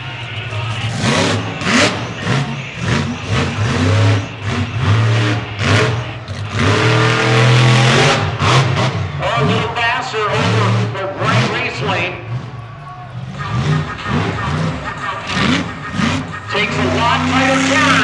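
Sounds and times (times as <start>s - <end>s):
monster truck engine revving: 0.0s - 18.0s.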